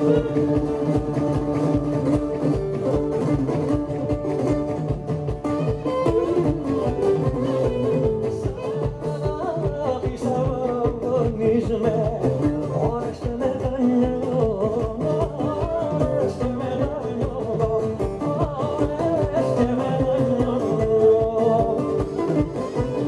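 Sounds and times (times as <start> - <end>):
man singing: 0.0 - 3.8, 5.8 - 23.0
bowed lyra melody: 0.0 - 10.4
strummed lute: 0.0 - 23.0.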